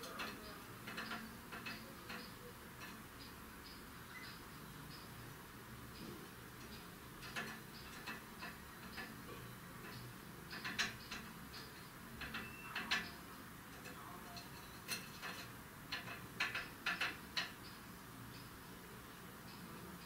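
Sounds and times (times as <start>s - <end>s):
high bird chirp: 3.2s - 5.1s.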